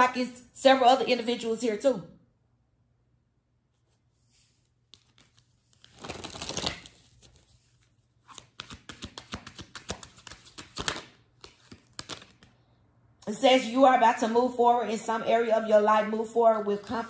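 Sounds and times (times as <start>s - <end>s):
cards being shuffled: 3.8s - 12.6s.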